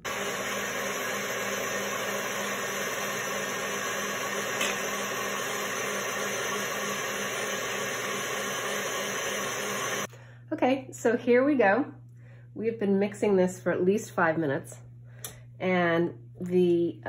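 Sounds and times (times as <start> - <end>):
stand mixer motor whirring: 0.0 - 10.1.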